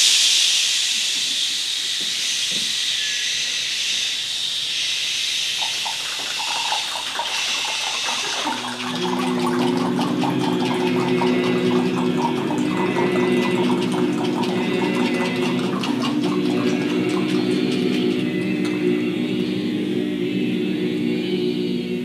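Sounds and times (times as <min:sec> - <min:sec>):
choir breathy hiss: 0:00.0 - 0:22.0
low held voice notes: 0:08.3 - 0:22.0.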